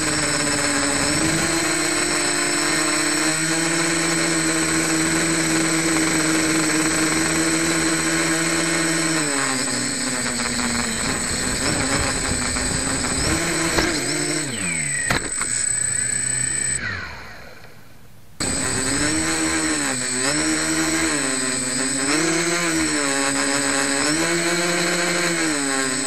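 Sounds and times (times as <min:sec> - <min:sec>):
drone motors humming: 0:00.0 - 0:26.0
drone knocking into grass: 0:11.8 - 0:14.2.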